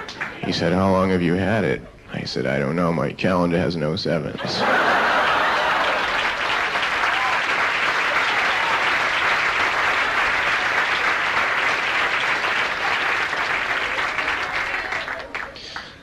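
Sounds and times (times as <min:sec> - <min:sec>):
audience applauding: 0:00.0 - 0:00.5, 0:04.4 - 0:16.0
audience laughing: 0:04.4 - 0:06.6.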